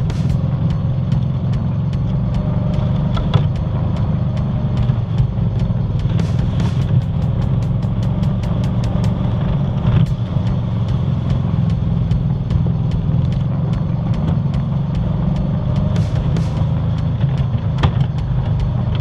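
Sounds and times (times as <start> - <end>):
atv engine running under load: 0.0 - 19.0.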